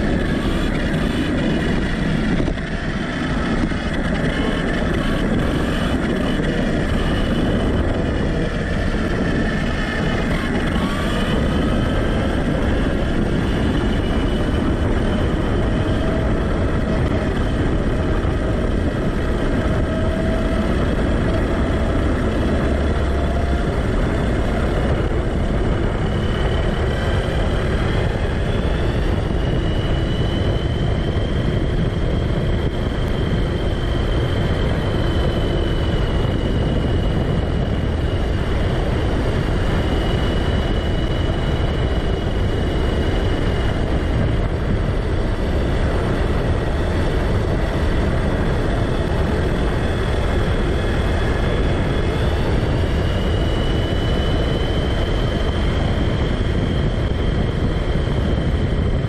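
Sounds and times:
electric motor whine: 0.0 - 59.0
tyre and wind noise: 0.0 - 59.0.

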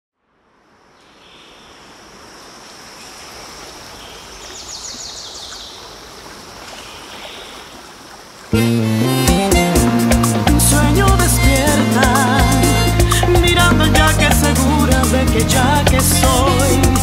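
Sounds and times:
rushing water: 0.5 - 17.0
loud music: 8.6 - 17.0.

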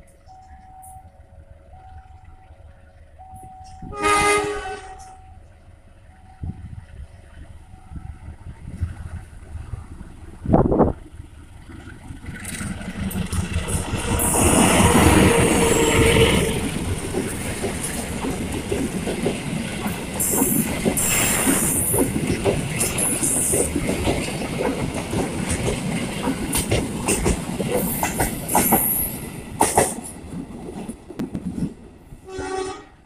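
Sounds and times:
diesel locomotive engine: 0.0 - 33.0
train wheels clattering over rail joints: 10.9 - 32.0
high wheel squeals: 13.9 - 16.7.

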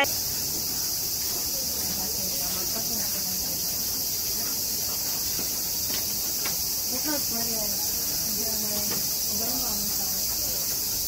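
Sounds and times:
faint voices: 0.0 - 11.0
insects buzzing: 0.0 - 11.0.

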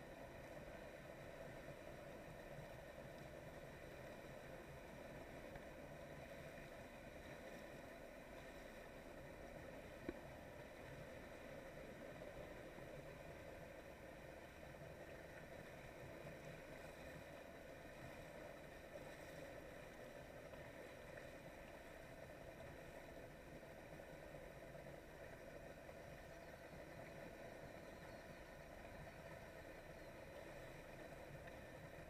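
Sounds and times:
faint watercraft engine drone: 0.0 - 32.0.

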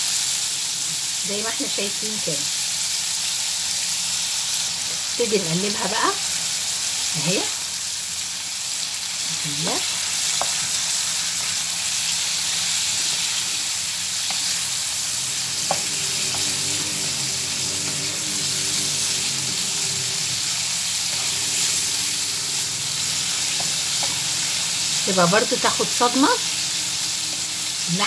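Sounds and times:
chicken sizzling in hot oil: 0.0 - 28.0
wooden spoon stirring in wok: 9.8 - 25.2
spoon knocking on wok: 15.6 - 16.5.

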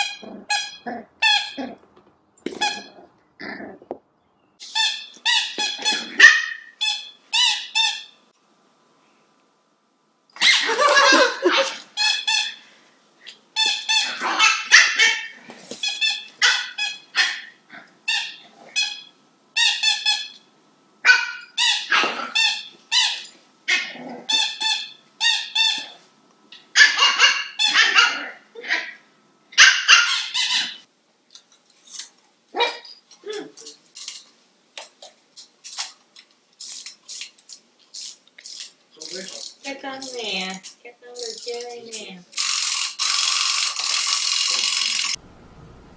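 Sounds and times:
puppy barking in high yaps: 5.8 - 6.8, 10.4 - 11.8, 14.0 - 15.3, 16.4 - 17.6, 21.0 - 24.0, 26.7 - 29.0, 29.6 - 30.8, 32.5 - 32.9.

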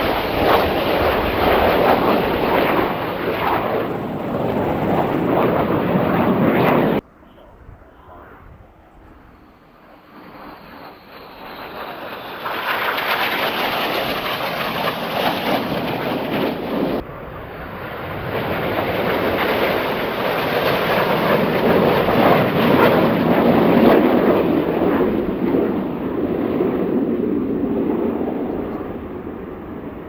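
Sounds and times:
jets flying past: 0.0 - 30.0.

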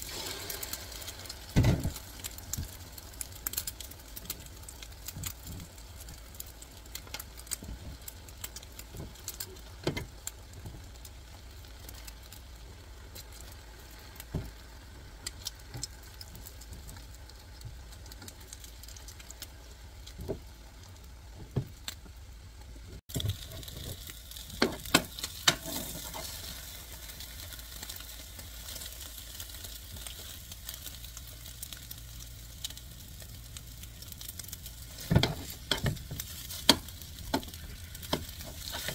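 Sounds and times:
egg sizzling in a pan: 0.0 - 38.9
utensils tapping a pan: 35.0 - 38.9.

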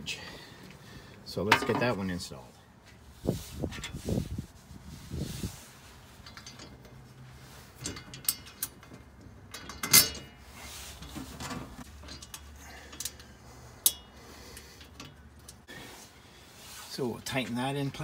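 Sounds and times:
metal clicks and clanks: 6.2 - 7.1, 7.7 - 15.7.

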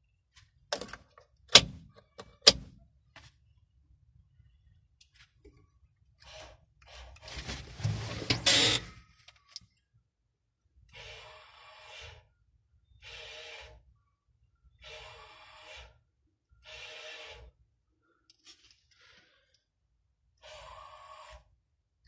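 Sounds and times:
small electric motor whirring: 16.6 - 17.5.

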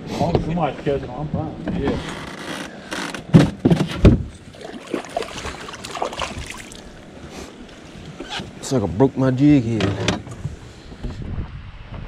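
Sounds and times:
loud thumps on boat hull: 3.2 - 4.3.

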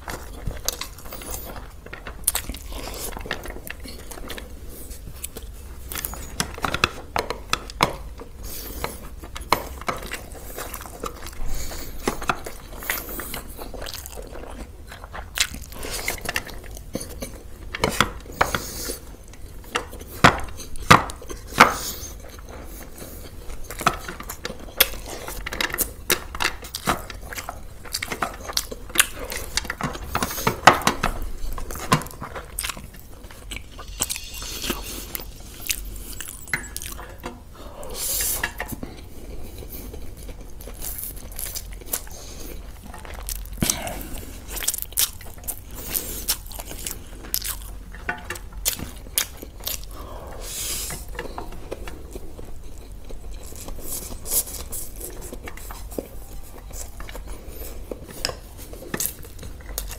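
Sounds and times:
person crunching and chewing food: 0.0 - 59.9
cutlery and dishes clinking: 15.8 - 18.8, 23.5 - 37.4.

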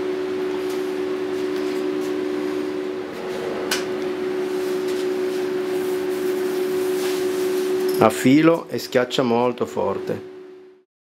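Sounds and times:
steady hum of constant tones: 0.7 - 8.0.

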